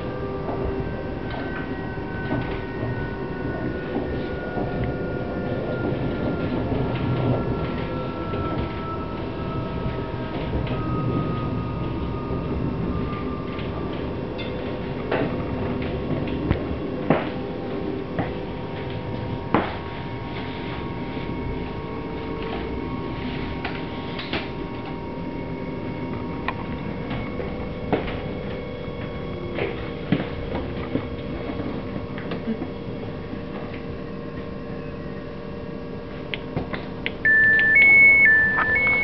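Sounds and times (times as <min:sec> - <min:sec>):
wheels clunking on rail joints: 0:00.0 - 0:25.0
train rumbling: 0:00.0 - 0:39.0
train whine: 0:00.0 - 0:39.0.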